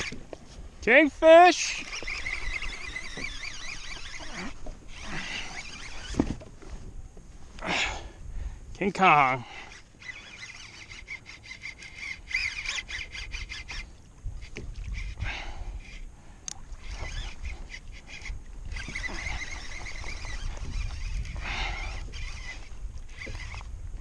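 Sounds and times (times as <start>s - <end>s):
fishing reel drag buzzing: 0.0s - 7.0s, 7.6s - 24.0s
wind: 0.0s - 24.0s.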